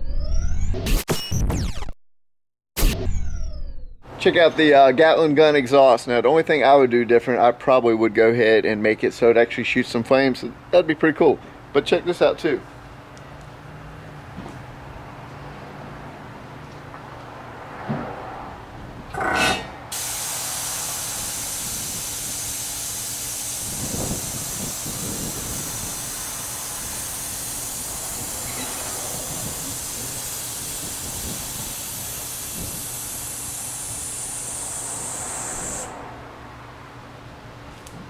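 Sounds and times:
air release burst: 0:19.3 - 0:36.1
air hissing from suspension: 0:19.8 - 0:36.1.

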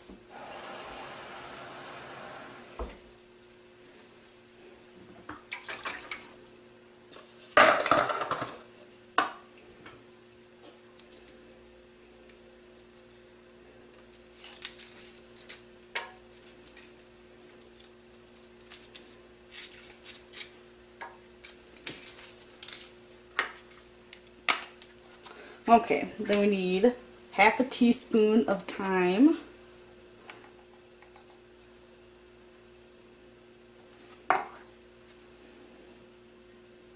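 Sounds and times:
foil wrappers crinkling: 0:11.0 - 0:15.7, 0:16.3 - 0:20.6, 0:21.4 - 0:23.8.

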